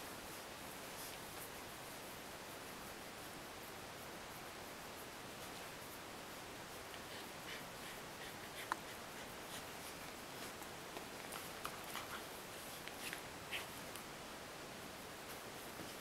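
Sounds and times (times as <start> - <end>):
steady hiss: 0.0 - 16.0
hand rubbing dog fur: 6.8 - 14.0.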